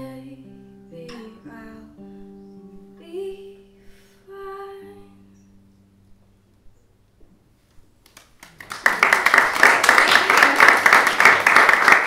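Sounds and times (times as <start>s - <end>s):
finger-picked acoustic guitar: 0.0s - 7.9s.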